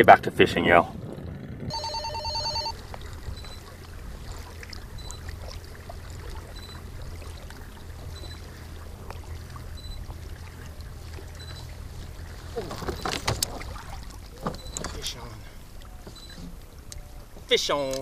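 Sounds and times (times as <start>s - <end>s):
water lapping around kayak: 0.0s - 18.0s
steady low rumble: 0.1s - 12.6s
faint short high beep: 1.7s - 2.8s
small splashes and clicks: 2.7s - 18.0s.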